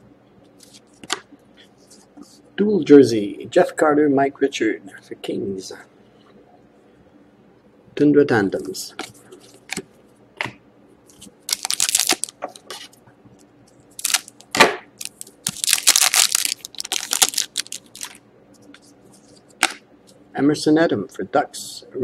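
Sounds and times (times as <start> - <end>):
plastic sleeve crinkling and scraping: 11.1 - 13.0, 14.0 - 14.4, 15.0 - 19.5
sharp plastic crack: 11.5 - 12.6, 14.0 - 18.2, 19.6 - 19.8.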